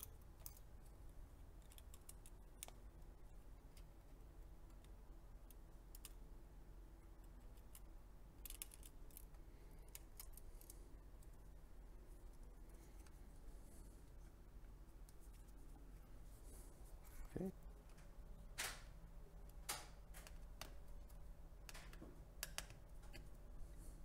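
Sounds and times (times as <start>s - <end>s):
fingers clicking plastic connectors: 1.5s - 3.0s, 4.6s - 6.3s, 7.2s - 11.3s, 17.8s - 23.3s.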